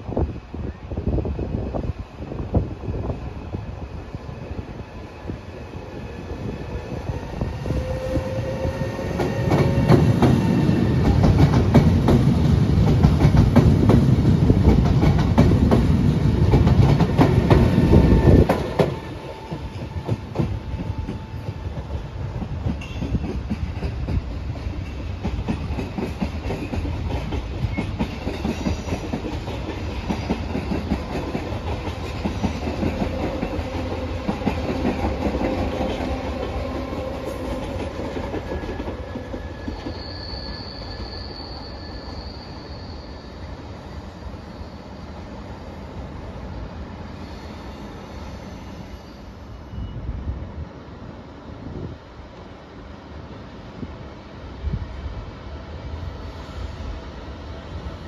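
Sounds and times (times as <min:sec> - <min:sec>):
distant train running: 0:00.0 - 0:58.0
train rumbling past: 0:00.0 - 0:58.0.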